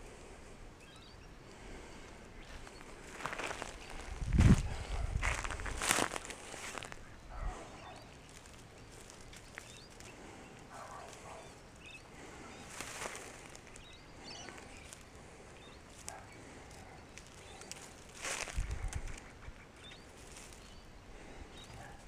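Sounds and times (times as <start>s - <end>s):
soft bird chirps: 0.7s - 22.0s
rustling and scratching in leaves: 2.5s - 20.8s.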